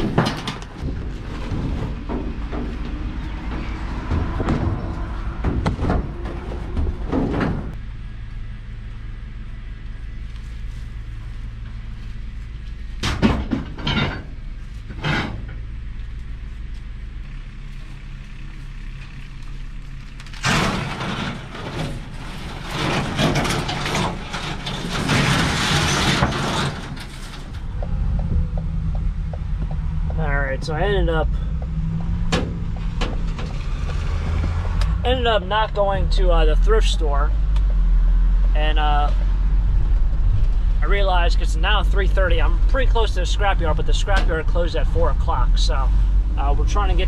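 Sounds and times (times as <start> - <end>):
appliance knocking and scraping: 0.0 - 7.8, 20.4 - 30.2, 31.3 - 34.8
low steady hum: 0.0 - 47.0.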